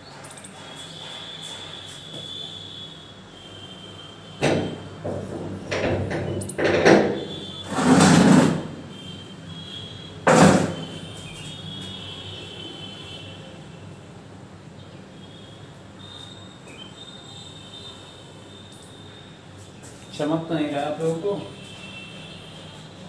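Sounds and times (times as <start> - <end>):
loud scrape: 7.5 - 8.8.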